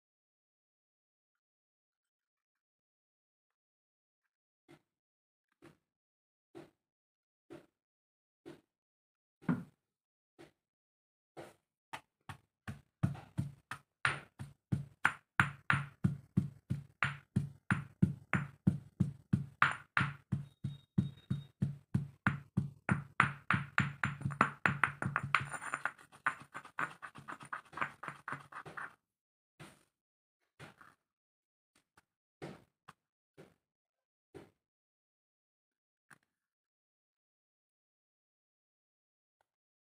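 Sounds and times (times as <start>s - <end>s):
stone pestle pounding in mortar: 12.3s - 28.9s.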